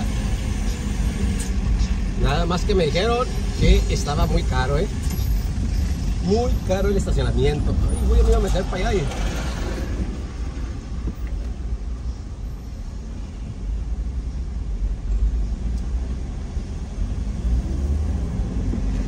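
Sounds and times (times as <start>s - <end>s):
car engine and tyres rumbling: 0.0s - 19.0s.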